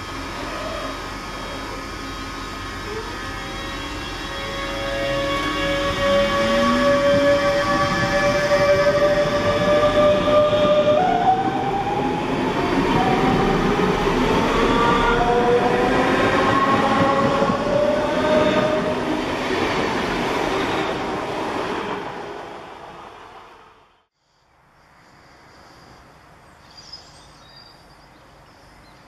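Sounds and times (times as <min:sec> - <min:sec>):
traction motors whining: 0:00.0 - 0:21.3
train wheels rumbling on rails: 0:00.0 - 0:23.5.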